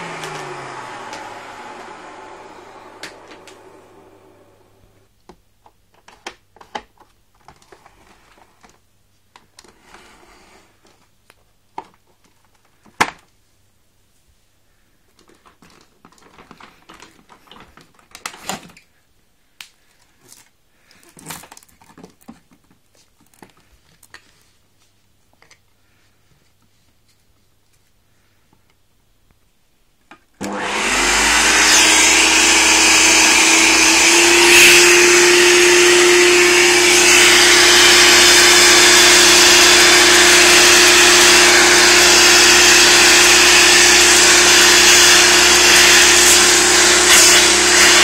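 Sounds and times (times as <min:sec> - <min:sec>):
plastic parts clicking and rattling: 0:05.3 - 0:09.8, 0:15.1 - 0:18.9, 0:19.9 - 0:24.5.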